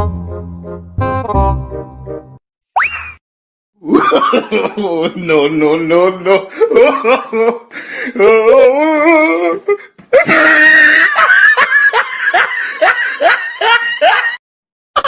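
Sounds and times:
person laughing loudly: 0:03.8 - 0:14.4.

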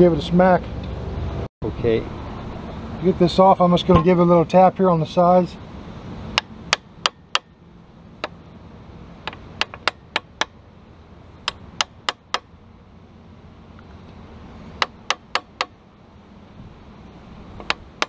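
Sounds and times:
hammer tapping on metal: 0:09.2 - 0:10.6, 0:11.4 - 0:12.5, 0:14.8 - 0:15.8.

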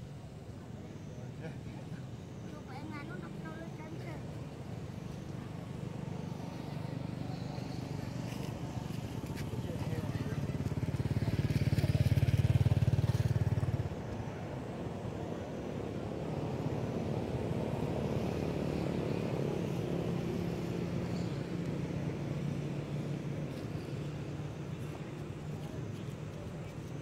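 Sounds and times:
vehicle engine running: 0:04.5 - 0:14.3.

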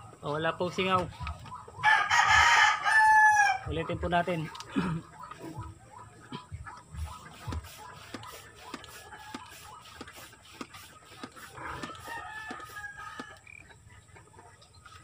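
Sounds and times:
rooster crowing: 0:01.8 - 0:03.6, 0:11.6 - 0:13.6.

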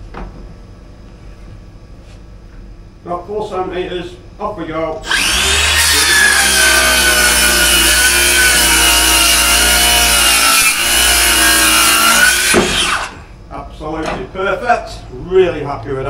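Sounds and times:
circular saw cutting: 0:05.0 - 0:13.2.

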